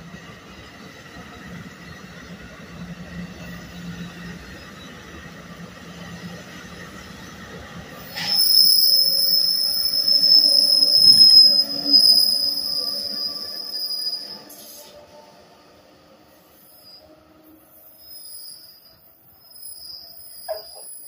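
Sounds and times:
train rumbling: 0.0 - 18.8
high-pitched train squeal: 8.0 - 20.9.

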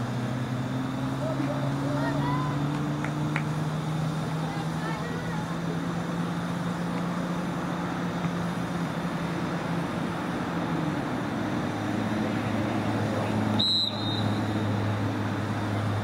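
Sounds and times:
referee's whistle blasts: 13.5 - 14.6.

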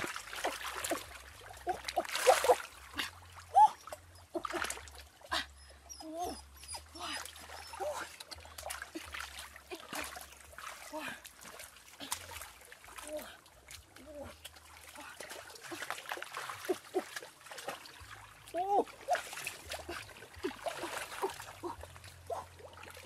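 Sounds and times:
hands splashing in water: 0.0 - 2.9
dog whining: 5.9 - 7.8.

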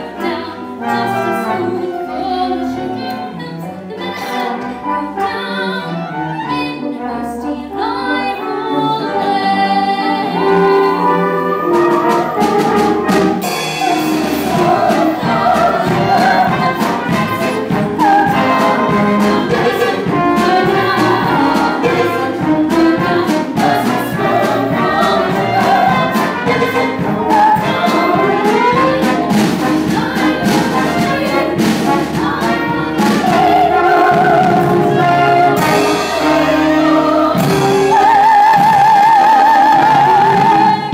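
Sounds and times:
brass pit band playing: 0.0 - 40.9
voices singing: 0.0 - 40.9.

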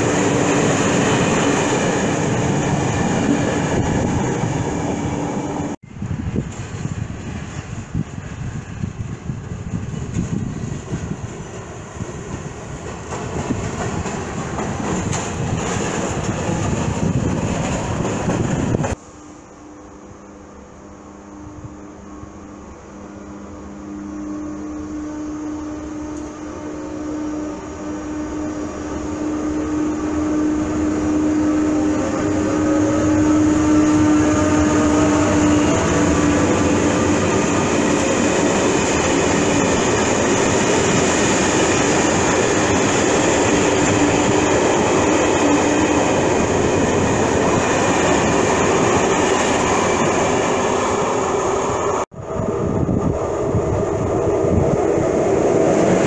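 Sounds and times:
train wheels rushing on rails: 0.0 - 19.1, 28.5 - 56.0
electric locomotive humming: 0.0 - 56.0.

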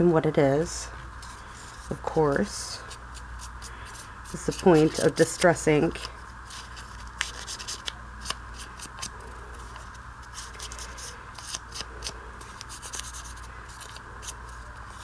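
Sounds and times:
steady background hum: 0.0 - 15.0
paper crinkling: 6.0 - 15.0
foam tool rubbing paper: 9.6 - 15.0.

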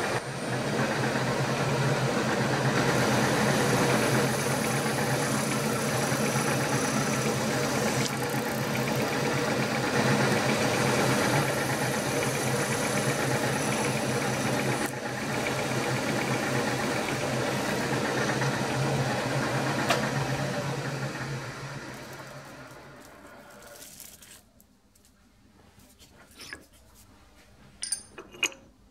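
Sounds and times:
drill press cutting metal: 2.8 - 23.7.

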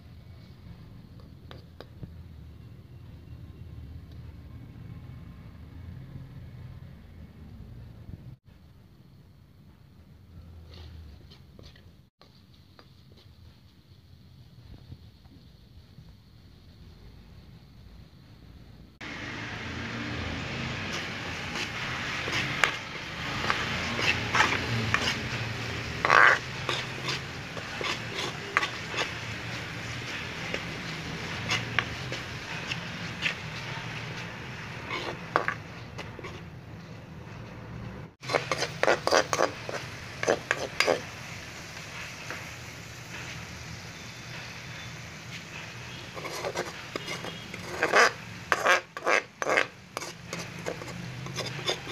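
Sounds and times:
masala sizzling in oil: 18.9 - 37.0, 38.1 - 51.9
spatula scraping metal pan: 19.8 - 36.5, 38.2 - 41.2, 45.5 - 51.9.

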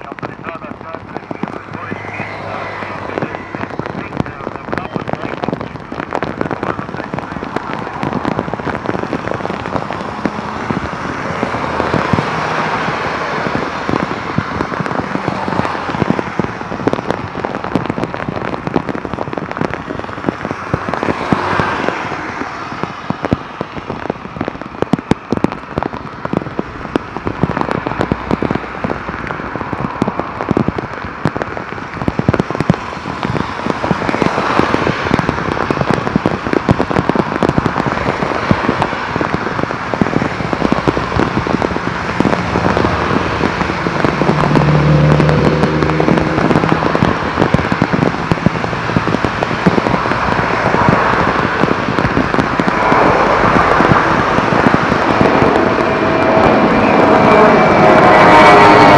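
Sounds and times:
raindrops hitting microphone: 0.0 - 58.9.

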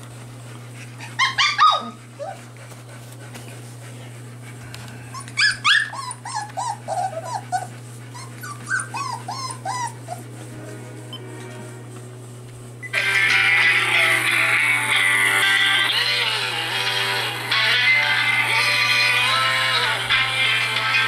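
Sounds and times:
puppies barking: 0.9 - 2.8, 5.1 - 11.3, 12.8 - 21.0.

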